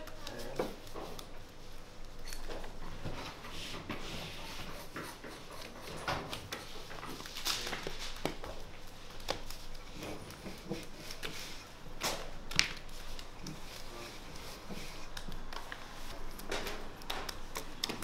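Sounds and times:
hands slapping dough: 3.6s - 18.0s.

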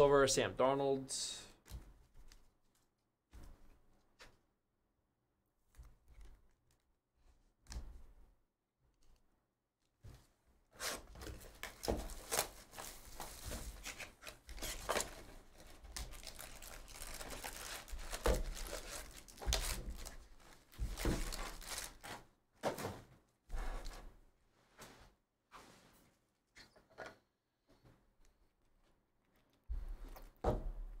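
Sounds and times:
crinkling wrapping: 11.4s - 22.2s
foil packs rustling: 11.4s - 22.2s.

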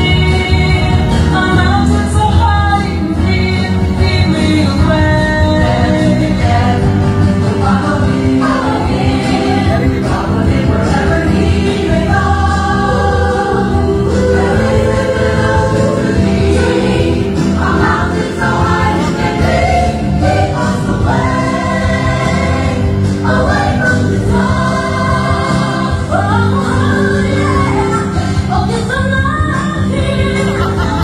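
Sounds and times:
gospel choir singing: 0.0s - 31.0s.

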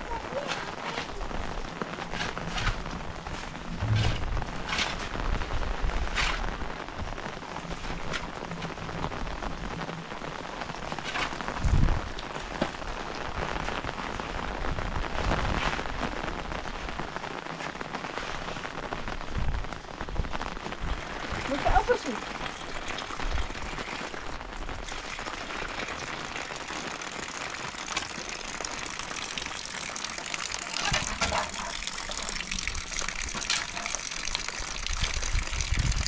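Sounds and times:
steady rain falling: 0.0s - 36.0s
low thump: 3.7s - 4.6s.

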